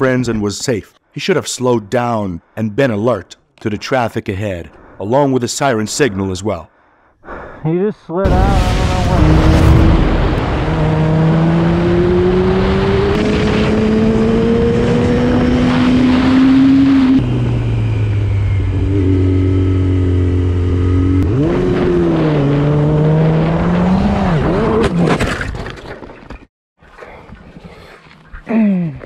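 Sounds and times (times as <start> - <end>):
wind rush: 8.3 - 18.6
motorcycle engine revving: 8.6 - 25.1.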